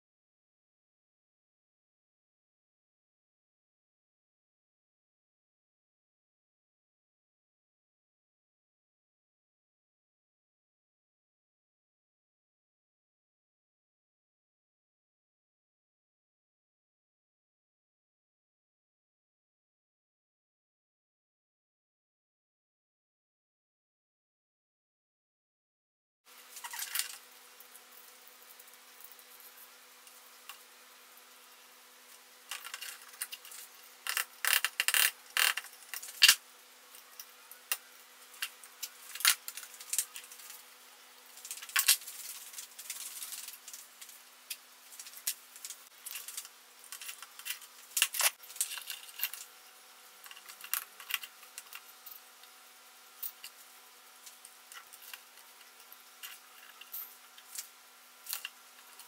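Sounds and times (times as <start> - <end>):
faint steady hum: 26.3 - 59.0.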